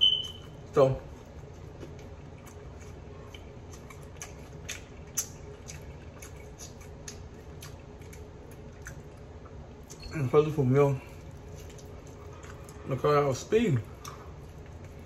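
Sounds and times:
low steady hum: 0.0s - 15.0s
wet eating smacks: 1.6s - 10.0s.

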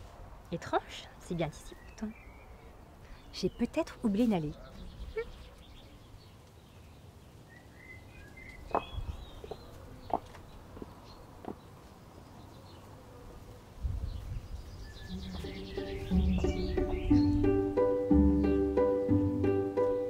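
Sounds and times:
bird chirps: 14.6s - 19.2s
low music: 15.1s - 20.0s.

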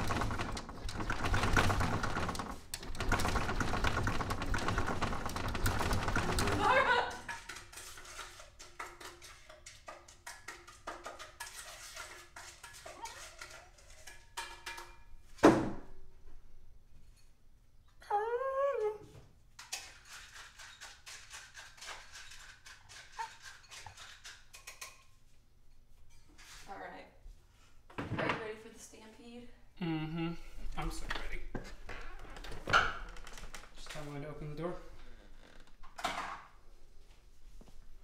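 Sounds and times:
dog whining: 18.0s - 19.1s.

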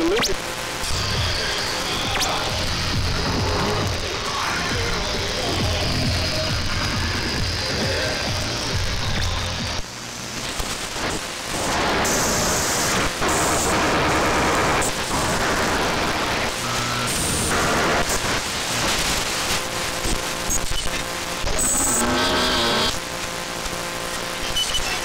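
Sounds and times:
radio hiss and static: 0.0s - 25.0s
brief radio tones: 24.1s - 25.0s.

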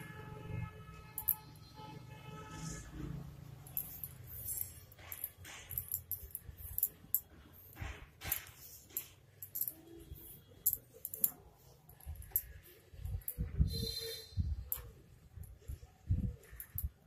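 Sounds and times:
cord rustling: 0.9s - 1.6s, 2.6s - 13.8s
light clicks of beads: 1.1s - 1.7s, 3.5s - 13.6s, 14.6s - 17.0s.

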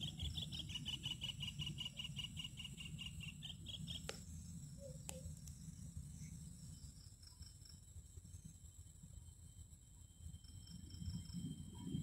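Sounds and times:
faint low rumble: 0.0s - 12.0s.

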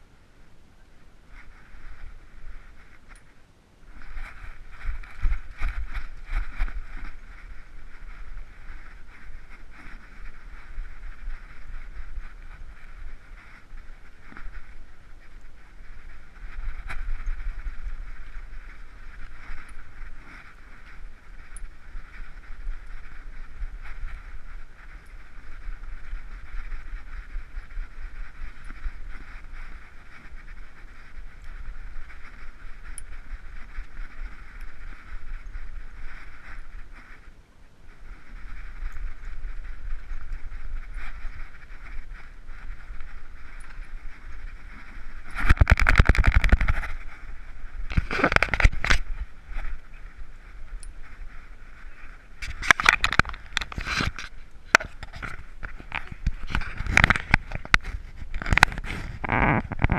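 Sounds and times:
rustling and scuffing: 3.9s - 14.8s
camera handling rumble: 3.9s - 37.2s, 38.2s - 59.9s
scratching and rattling clicks: 44.6s - 47.0s, 47.9s - 49.2s, 52.4s - 59.9s.

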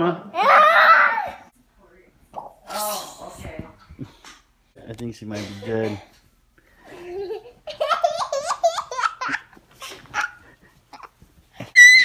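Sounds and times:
girl giggling: 6.9s - 12.0s.

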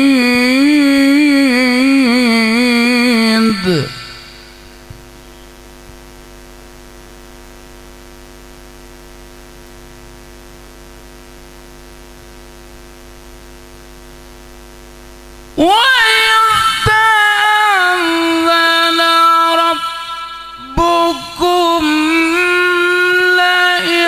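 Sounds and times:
man reciting melodically: 0.0s - 4.8s, 15.6s - 24.0s
electrical mains hum: 0.0s - 24.0s.

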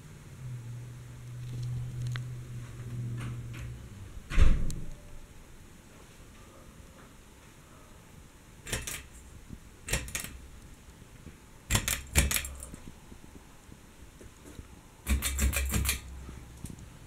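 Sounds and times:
pull-chain switch clicking: 8.7s - 9.1s, 11.7s - 12.7s, 15.1s - 16.1s.

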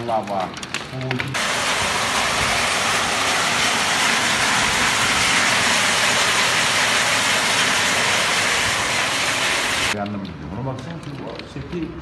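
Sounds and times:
heavy rain on a road: 1.4s - 10.0s.

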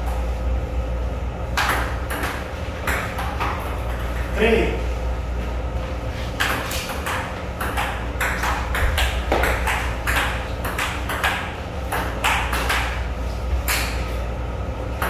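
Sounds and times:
steady low hum: 0.0s - 15.0s
ping-pong ball clicking: 6.4s - 13.0s.

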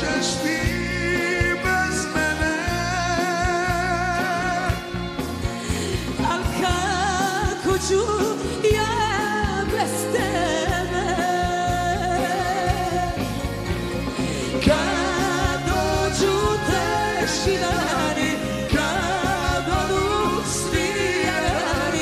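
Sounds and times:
band with steady bass beat: 0.0s - 22.0s
woman singing with vibrato: 6.1s - 13.4s, 14.5s - 22.0s.

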